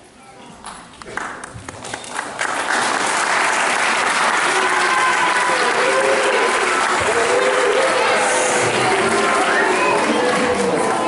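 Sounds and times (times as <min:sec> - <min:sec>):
audience applauding: 0:01.0 - 0:11.0.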